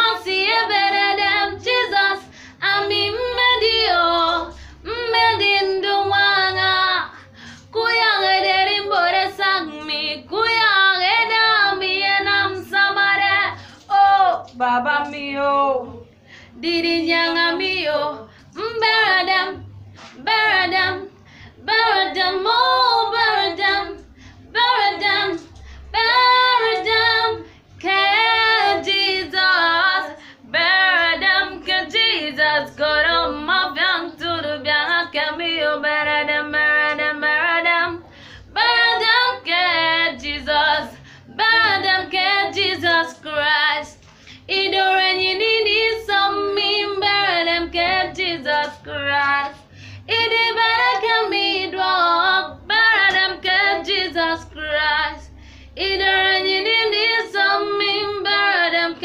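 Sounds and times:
woman singing unaccompanied: 0:00.0 - 0:59.0.

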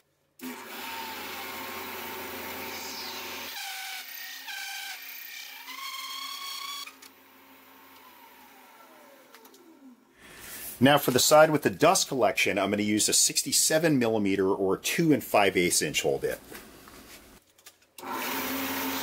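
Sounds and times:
hole saw whining through plastic: 0:00.4 - 0:10.0, 0:18.0 - 0:19.0.

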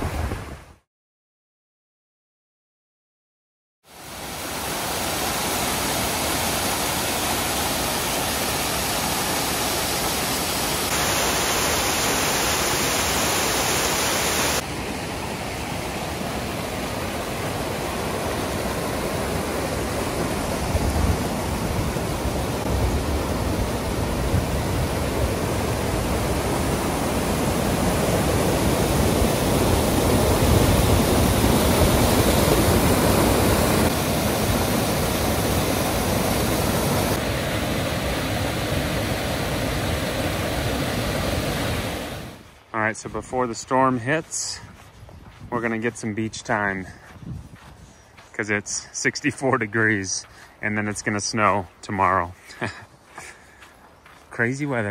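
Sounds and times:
steady rushing noise: 0:10.4 - 0:14.7, 0:17.4 - 0:43.5.

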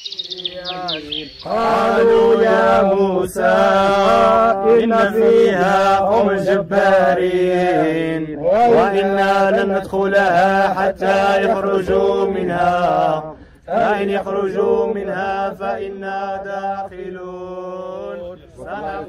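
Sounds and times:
person chanting: 0:00.0 - 0:19.0.

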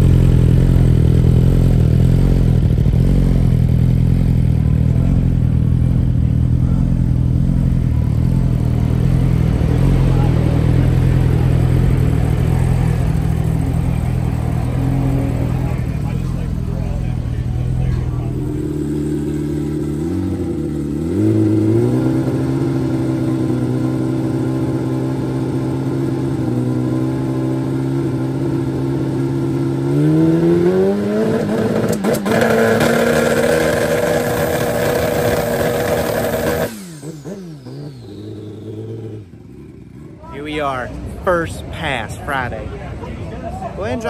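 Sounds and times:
motorcycle engine revving: 0:00.0 - 0:43.0.

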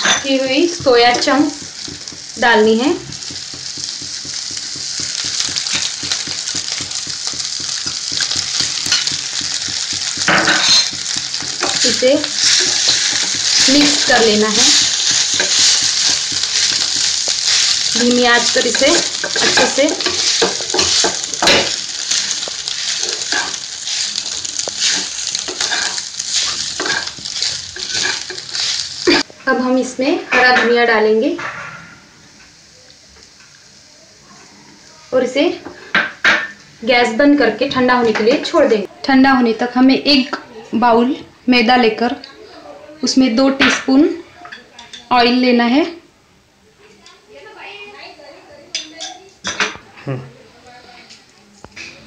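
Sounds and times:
spatula scraping a pan: 0:00.0 - 0:29.3
food sizzling in oil: 0:00.0 - 0:41.0.

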